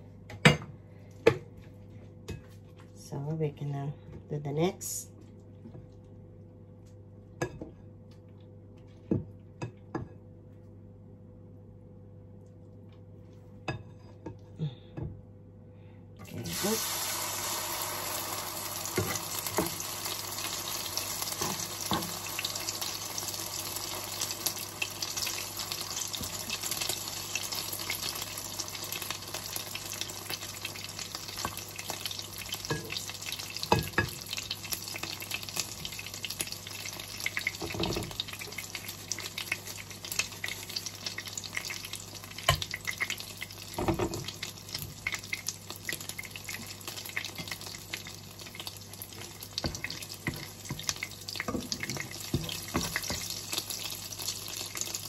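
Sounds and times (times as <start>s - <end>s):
food frying in hot oil: 16.2s - 55.0s.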